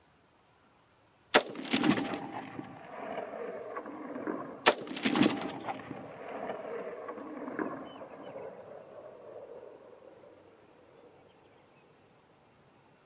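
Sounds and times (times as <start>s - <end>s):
rifle shots with echo: 1.4s - 10.6s.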